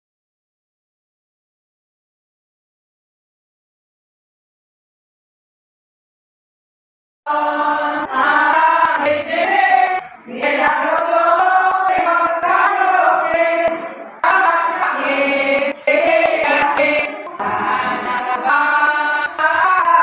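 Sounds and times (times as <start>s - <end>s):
women singing together: 7.3s - 20.0s.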